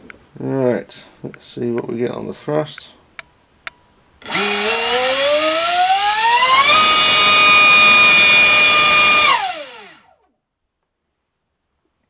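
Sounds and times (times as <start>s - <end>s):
electric motor spinning propeller: 4.2s - 10.2s.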